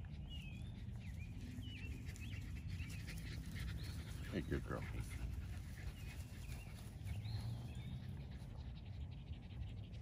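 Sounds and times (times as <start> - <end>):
dog panting hard: 2.2 - 8.8.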